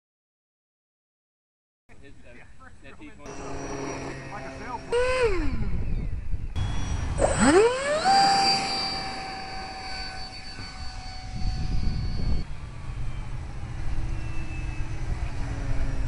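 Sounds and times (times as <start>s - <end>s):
distant model plane motor drone: 3.2s - 16.0s
model airplane motor whine: 3.3s - 16.0s
wind rush: 3.3s - 16.0s.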